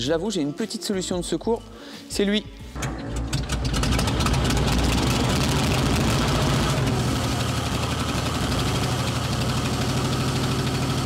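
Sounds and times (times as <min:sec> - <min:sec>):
vehicle engine idling: 0:02.8 - 0:11.0.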